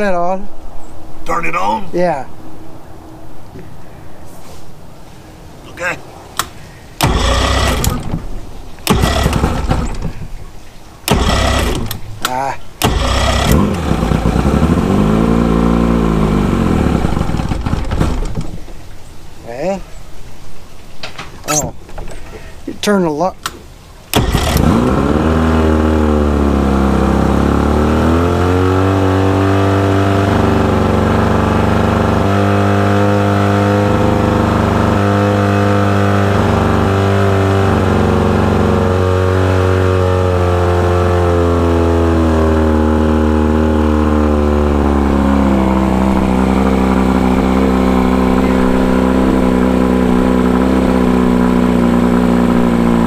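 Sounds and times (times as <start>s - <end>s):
outboard motor idling: 7.0s - 18.8s, 24.1s - 53.0s.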